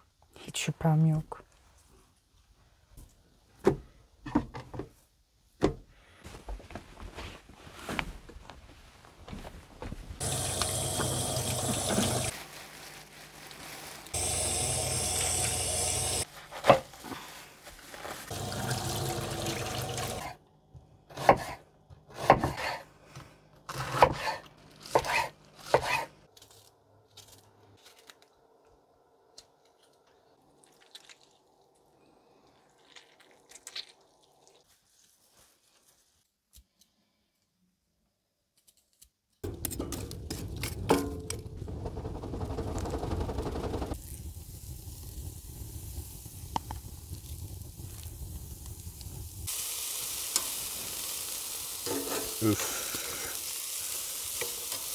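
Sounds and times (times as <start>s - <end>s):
water running from tap: 10.2s - 12.3s, 14.2s - 16.2s, 18.3s - 20.3s, 49.4s - 54.9s
knife chopping vegetables: 21.1s - 22.8s, 23.7s - 26.1s.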